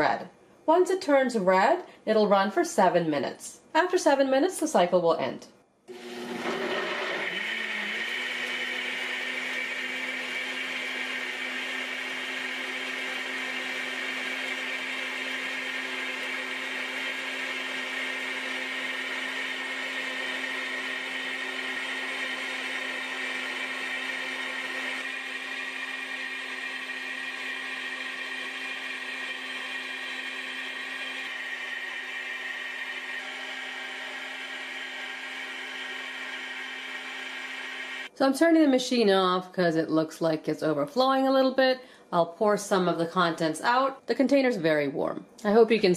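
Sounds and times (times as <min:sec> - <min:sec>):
blender motor whine: 0:05.9 - 0:38.1.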